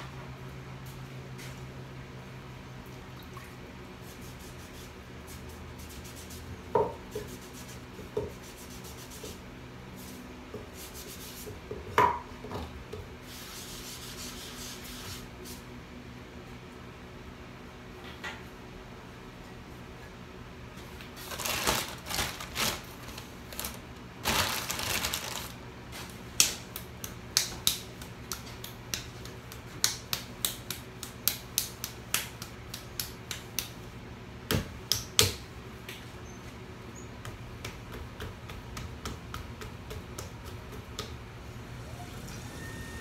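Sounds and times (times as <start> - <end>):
clay slapped between palms: 26.4 - 33.8, 34.5 - 36.0, 37.2 - 41.2.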